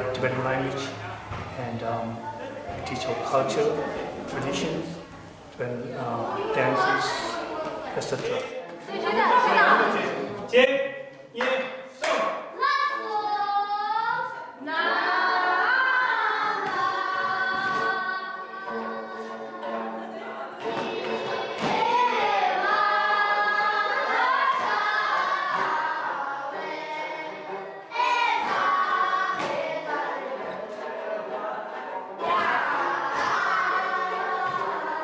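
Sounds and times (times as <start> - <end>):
group of voices singing: 12.4 - 35.0.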